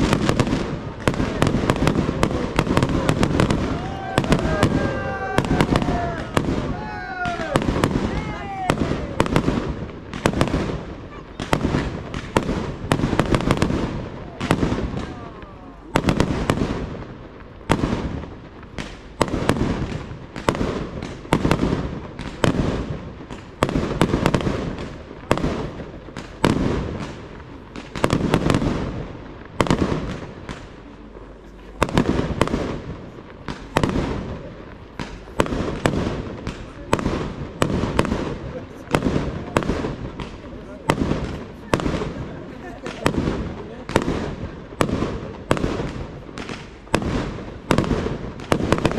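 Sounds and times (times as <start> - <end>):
fireworks bursting: 0.0 - 48.9.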